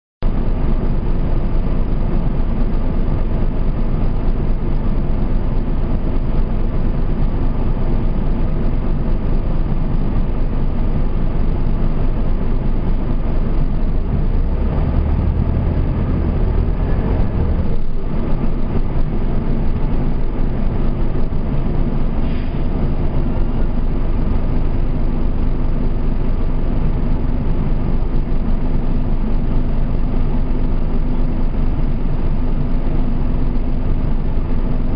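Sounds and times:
bus diesel engine idling: 0:00.2 - 0:34.9
deep engine rumble: 0:00.2 - 0:34.9.

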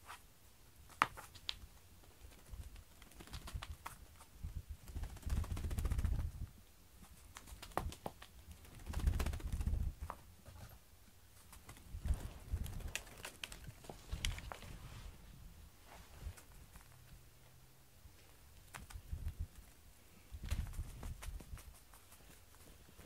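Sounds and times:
toy clicking and rustling on mat: 0:20.4 - 0:23.0.

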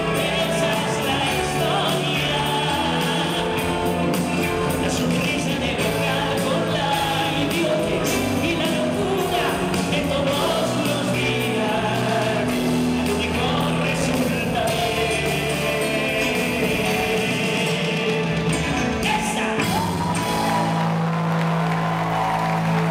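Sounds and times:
bass guitar: 0:00.0 - 0:22.9
drums: 0:00.0 - 0:22.9
keyboards: 0:00.0 - 0:22.9.

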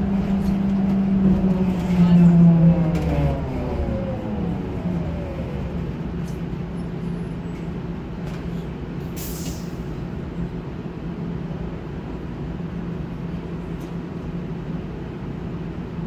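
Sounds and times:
trolleybus electrical hum: 0:00.0 - 0:16.0
short hiss of air: 0:09.2 - 0:09.8.

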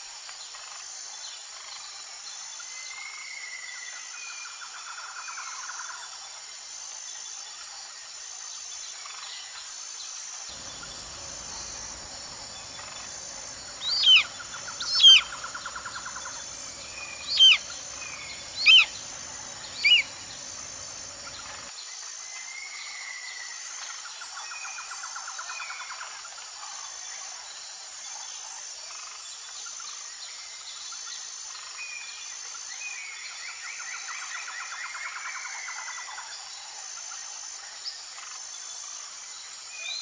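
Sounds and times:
faint insect hum: 0:00.1 - 0:23.5
bird trilling: 0:10.5 - 0:21.7
eagle calling: 0:10.5 - 0:21.7.

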